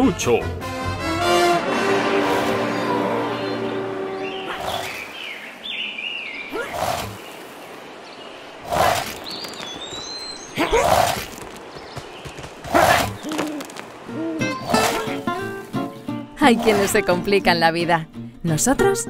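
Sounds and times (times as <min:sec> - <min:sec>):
birds chirping: 0:02.2 - 0:18.7
cartoon characters grunting: 0:06.5 - 0:07.1, 0:10.6 - 0:11.3.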